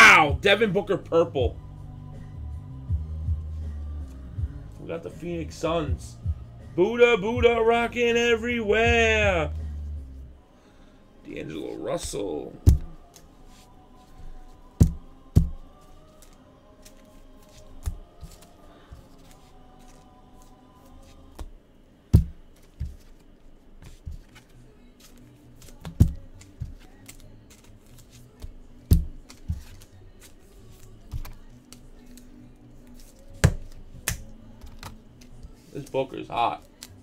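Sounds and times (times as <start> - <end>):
quiet background music: 0.0 - 37.0
cards clicking and rustling: 16.0 - 21.5, 22.5 - 37.0
cards knocking on table: 33.4 - 35.0.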